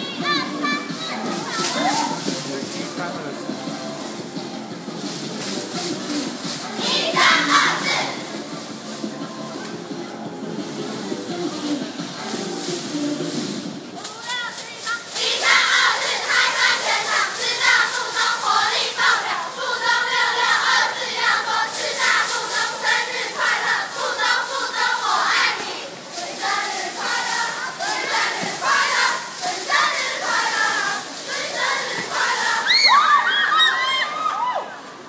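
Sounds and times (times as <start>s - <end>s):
girls chanting a cheer in unison: 0.0s - 2.3s, 6.6s - 8.4s, 14.0s - 33.9s.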